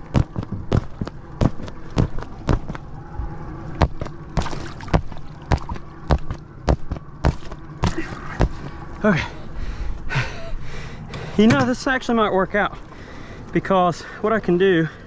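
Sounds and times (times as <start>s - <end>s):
blade stabbing vinyl: 3.8s - 8.6s.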